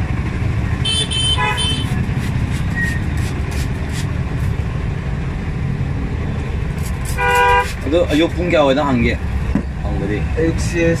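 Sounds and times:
road traffic rumble: 0.0 - 11.0
vehicle horn toots: 0.8 - 2.0, 7.1 - 7.8.

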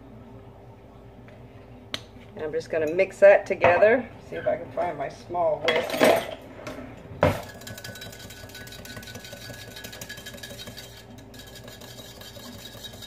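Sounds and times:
whisk stirring in bowl: 7.3 - 13.0.

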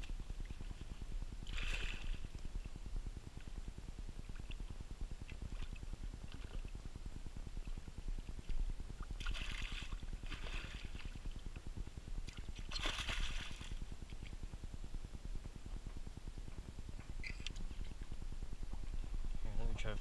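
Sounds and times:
steady low rumble: 0.0 - 20.0
fish thrashing and splashing water: 12.4 - 13.8.

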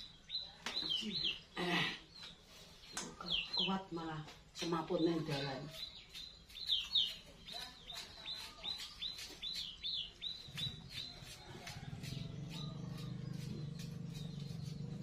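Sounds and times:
small bird chirping: 0.0 - 15.0.

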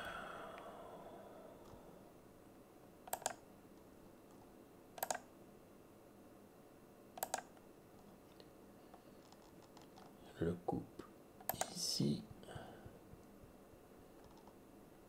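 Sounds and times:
computer mouse double clicks: 3.1 - 3.4, 5.0 - 5.2, 7.2 - 7.5.

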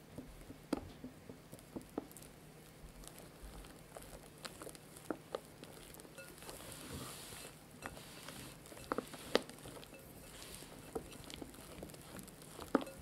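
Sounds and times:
batter squishing: 0.0 - 13.0
whisk clicking against glass: 12.6 - 13.0.

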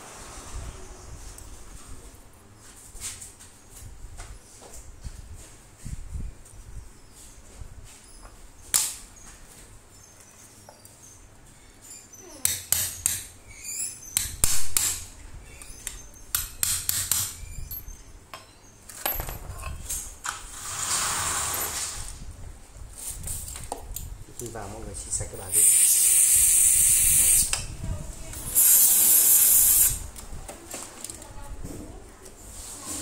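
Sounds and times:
hiss of spray: 25.5 - 27.5, 28.5 - 30.0.

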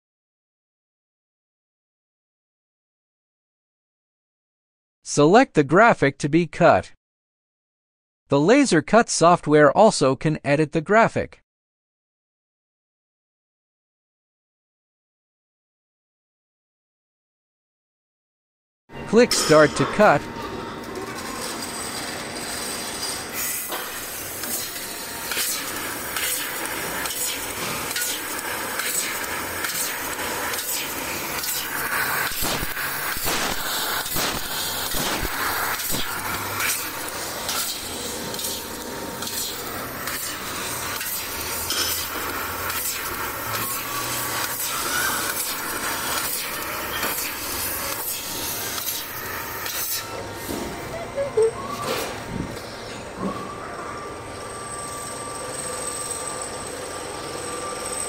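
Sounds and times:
laser cutter hissing and crackling: 21.2 - 50.8.

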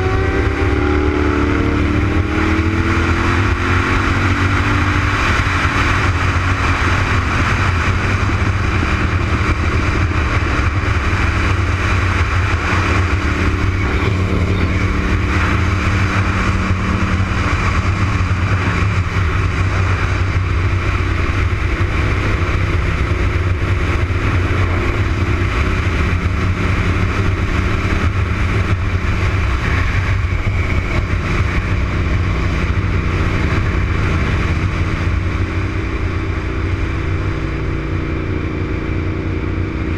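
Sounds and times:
motorcycle engine at speed: 0.0 - 39.9
wind rush on microphone: 0.0 - 39.9.

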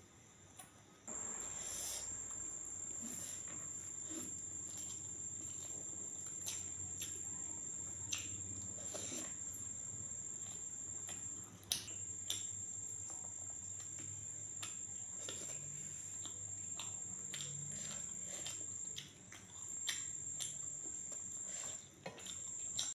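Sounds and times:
low hum: 1.1 - 6.7
chewing: 1.9 - 22.9.

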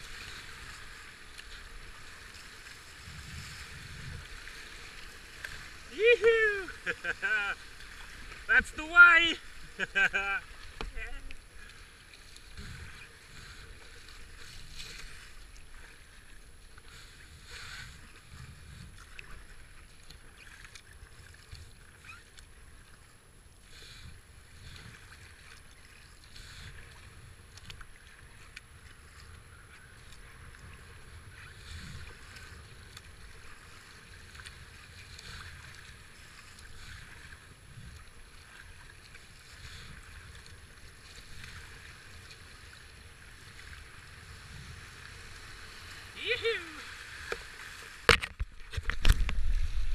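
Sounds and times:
paddle strokes splashing: 0.0 - 49.9
whitewater rushing: 5.7 - 7.6, 8.4 - 11.2, 45.5 - 48.2.

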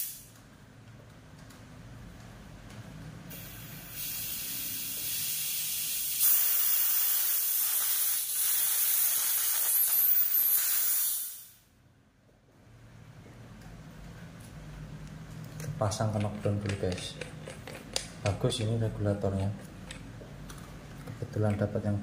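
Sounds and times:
high-pressure air hissing: 0.0 - 0.3, 3.3 - 11.7.

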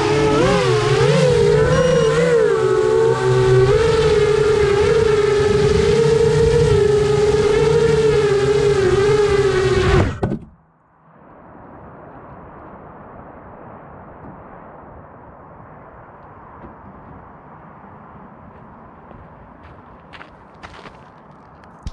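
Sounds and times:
drone motors whining: 0.0 - 10.6.

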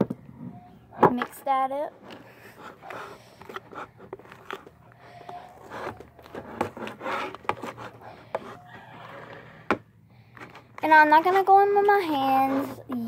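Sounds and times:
tool scraping sticky slime: 5.3 - 9.6, 10.8 - 13.0.

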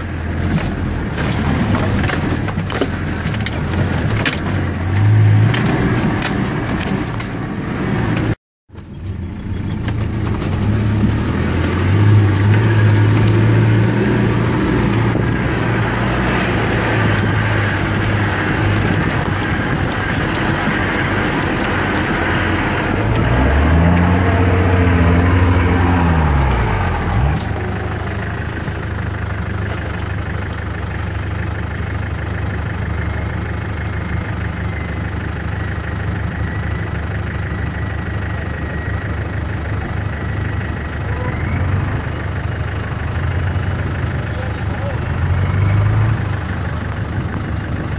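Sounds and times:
engine revving: 0.0 - 8.4, 9.7 - 29.8, 38.2 - 47.9
vehicle engine running: 0.0 - 47.9.

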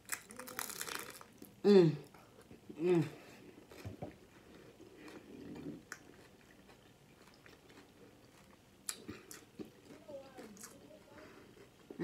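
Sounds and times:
chewing food: 2.4 - 12.0.

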